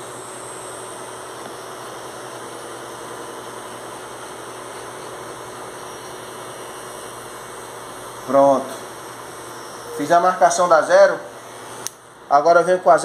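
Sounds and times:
electric hair clipper buzzing: 0:00.0 - 0:10.3, 0:11.4 - 0:12.1.

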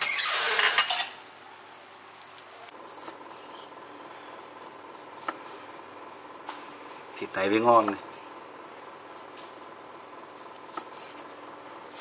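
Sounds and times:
steady low hiss: 0:01.0 - 0:07.7.

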